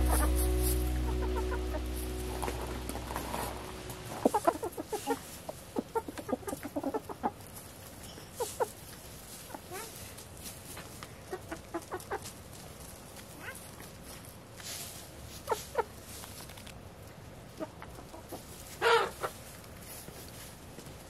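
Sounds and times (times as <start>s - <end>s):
song: 0.0s - 4.4s
chickens clucking: 0.0s - 10.0s, 11.2s - 12.3s, 17.5s - 19.6s.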